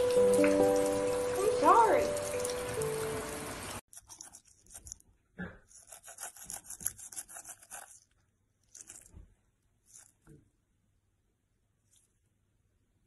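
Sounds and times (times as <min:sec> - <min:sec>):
music: 0:00.0 - 0:03.6
water noise: 0:00.0 - 0:03.8
toothbrush scrubbing teeth: 0:03.9 - 0:09.2, 0:09.8 - 0:10.3.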